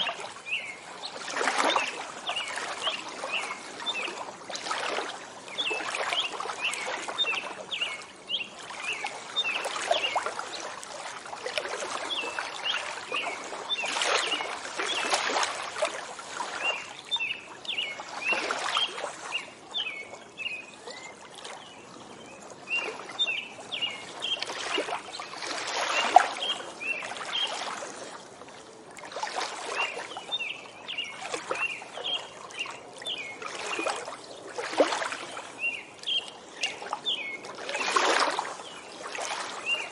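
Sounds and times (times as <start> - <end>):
water lapping against shore: 0.0 - 39.9
birds chirping: 22.7 - 25.3, 35.6 - 37.4.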